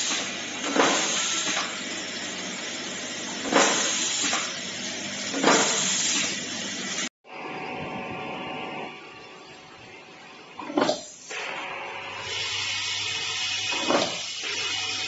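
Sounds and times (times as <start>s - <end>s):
machine buzzing hiss: 0.0s - 7.1s.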